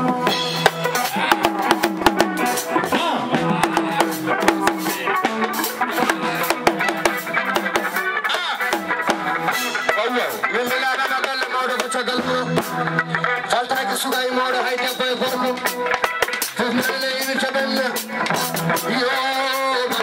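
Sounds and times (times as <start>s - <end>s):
background music: 0.0s - 20.0s
fast drumming with sticks and hands: 0.0s - 20.0s
person's voice: 2.2s - 6.7s, 9.9s - 15.7s, 16.6s - 20.0s.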